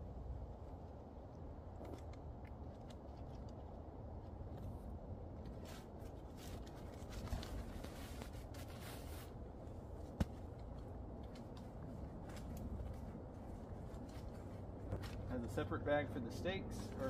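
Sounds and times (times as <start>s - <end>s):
nylon fabric rustling: 5.6s - 10.5s.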